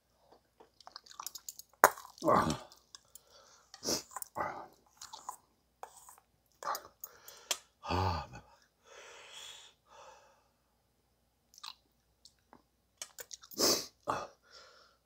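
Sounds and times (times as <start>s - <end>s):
chewing and mouth noises: 0.6s - 3.1s, 4.0s - 6.9s, 11.6s - 12.4s, 13.0s - 13.6s
man groaning: 2.2s - 2.7s, 7.8s - 8.5s
sharp breath: 8.9s - 10.4s.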